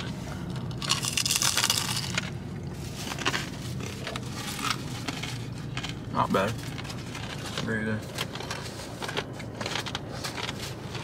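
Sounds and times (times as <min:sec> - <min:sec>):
crunching fried pork skin: 0:00.6 - 0:02.4.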